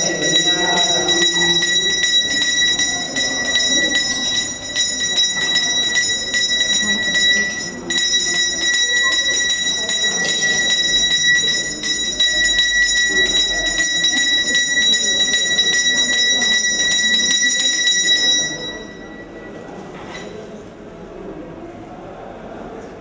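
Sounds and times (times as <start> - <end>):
bell ringing rapidly: 0.0 - 20.4.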